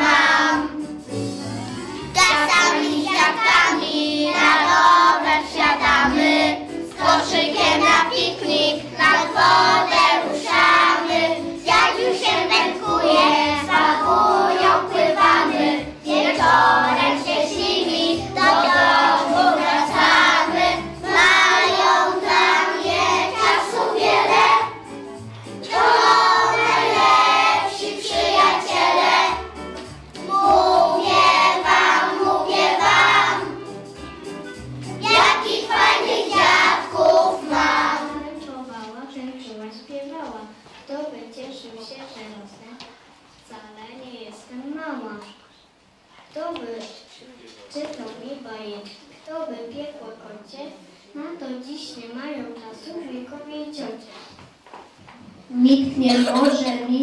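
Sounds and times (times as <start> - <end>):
children singing in unison: 0.0 - 0.8, 2.3 - 24.7, 25.7 - 29.4, 30.3 - 33.6, 35.1 - 38.1
instrumental accompaniment: 0.0 - 38.4.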